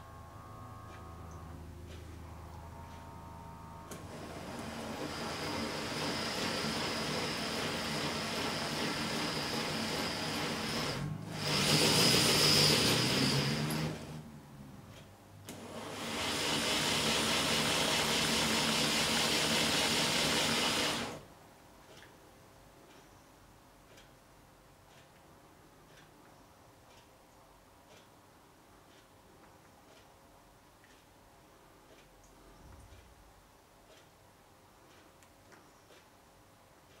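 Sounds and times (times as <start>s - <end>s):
electric motor and gear whir: 0.0s - 14.3s, 15.6s - 21.2s.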